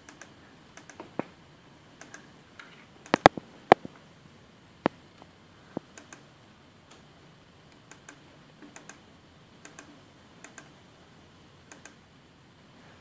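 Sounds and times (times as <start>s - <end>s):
computer mouse clicks: 0.0s - 1.3s, 2.0s - 3.9s, 5.2s - 6.3s, 7.7s - 9.0s, 9.6s - 10.8s, 11.7s - 12.0s.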